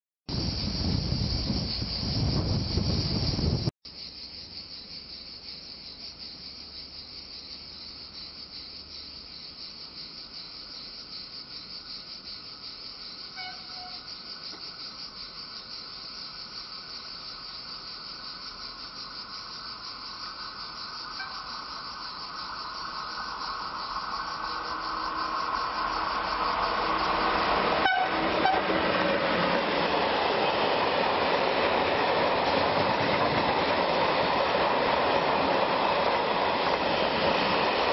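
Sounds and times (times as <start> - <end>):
insect chorus: 0.3 - 37.9
freight train rolling past: 11.4 - 37.9
faint horn-like tone: 13.4 - 14.0, 21.2 - 21.6, 27.8 - 28.8.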